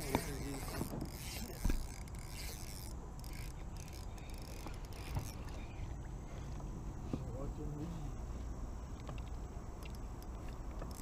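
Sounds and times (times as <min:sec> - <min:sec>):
fishing reel whirring: 0:00.0 - 0:06.1, 0:09.8 - 0:11.0.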